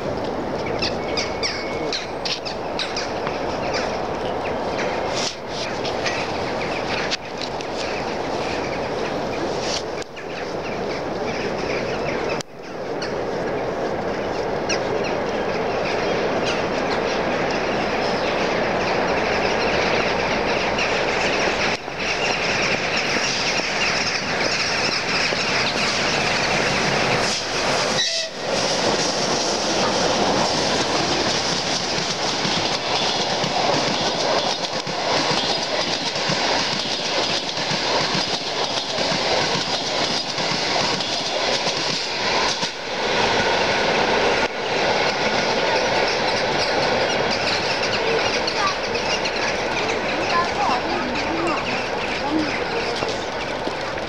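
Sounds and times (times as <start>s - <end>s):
train rolling rumble: 0.0s - 54.0s
wheels clacking over rail joints: 0.0s - 54.0s.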